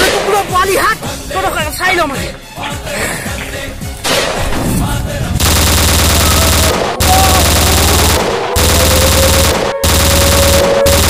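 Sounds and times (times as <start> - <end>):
automatic rifle fire: 5.4 - 11.0.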